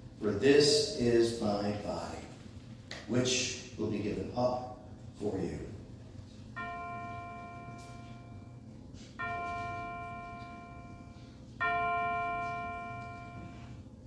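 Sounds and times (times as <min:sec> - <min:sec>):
altar bell ringing: 0:06.6 - 0:13.8.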